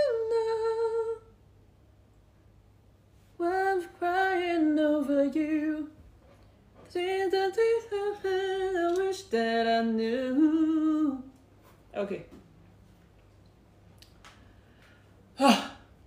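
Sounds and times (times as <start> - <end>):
woman singing wordless tune: 0.0 - 1.4, 3.4 - 6.0, 6.9 - 11.4.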